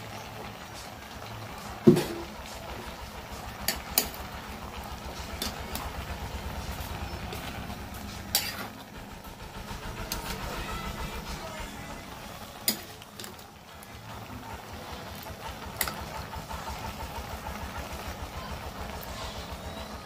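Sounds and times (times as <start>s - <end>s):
metal spatula scraping a pan: 6.7s - 8.8s.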